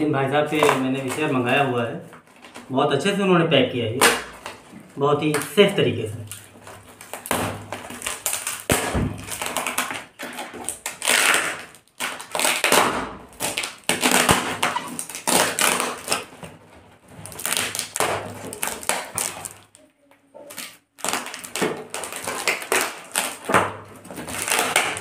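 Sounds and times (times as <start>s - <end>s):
plastic and cardboard crinkling: 0.0s - 3.2s, 3.9s - 25.0s.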